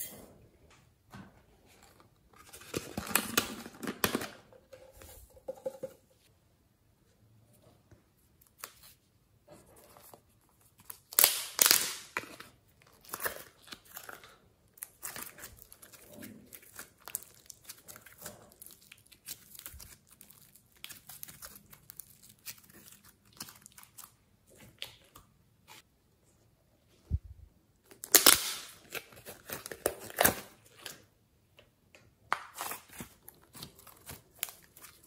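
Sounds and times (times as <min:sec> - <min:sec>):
clay squishing and crackling: 0:07.8 - 0:26.4, 0:27.0 - 0:35.0.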